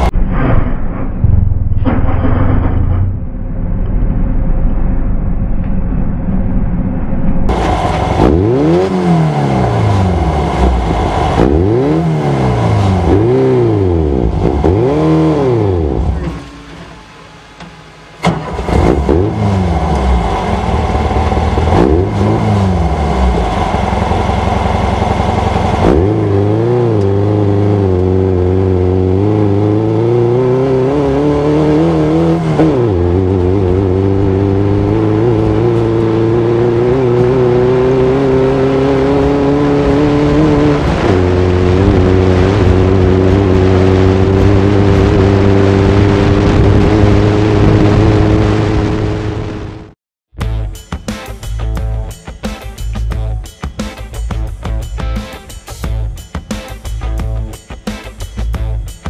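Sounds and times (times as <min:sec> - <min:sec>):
race car engine revving: 0:07.5 - 0:50.0.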